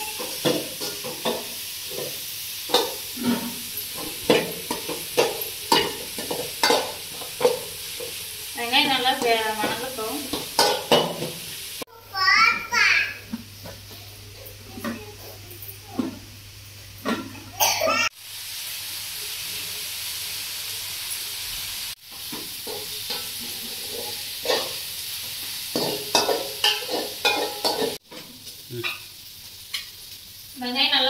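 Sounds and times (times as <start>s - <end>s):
onions sizzling in oil: 0.0s - 31.0s
metal spatula scraping pan: 22.6s - 24.8s.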